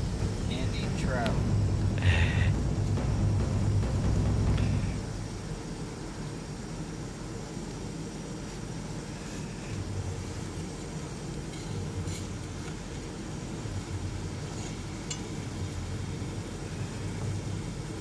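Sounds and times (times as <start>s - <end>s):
steady low rumble: 0.0s - 6.9s.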